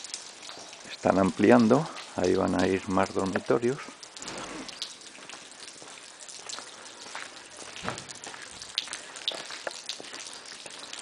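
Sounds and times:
faint steady hiss: 0:00.0 - 0:11.0.

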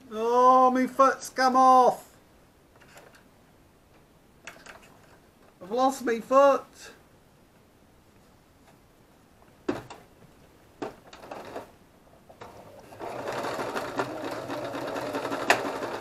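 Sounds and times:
electric sewing machine stitching: 0:11.1 - 0:11.7, 0:12.4 - 0:16.0.

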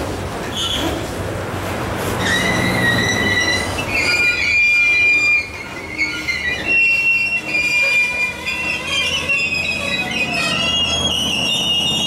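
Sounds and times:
train cars rumbling: 0:00.0 - 0:12.0
steel wheels squealing: 0:00.4 - 0:01.2, 0:02.0 - 0:12.0.

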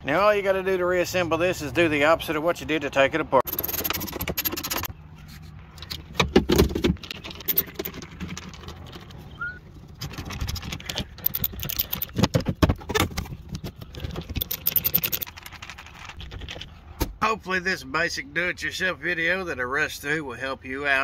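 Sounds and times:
plastic trim clicking and rattling: 0:10.0 - 0:15.4.

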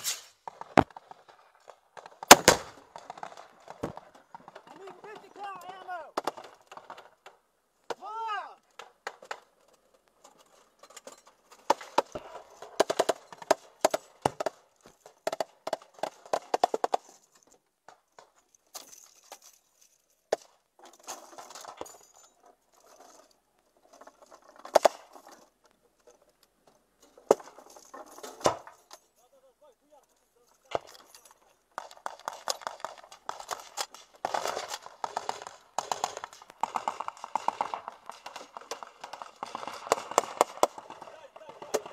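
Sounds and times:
ammunition belt clinking and rattling: 0:08.8 - 0:29.2, 0:30.0 - 0:41.9.

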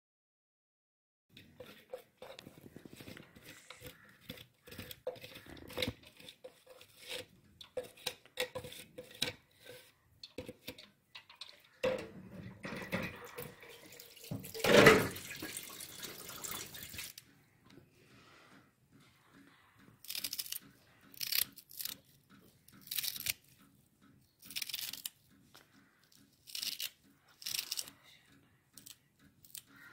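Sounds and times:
running water: 0:12.4 - 0:17.2
water dripping and splashing: 0:12.6 - 0:17.2.

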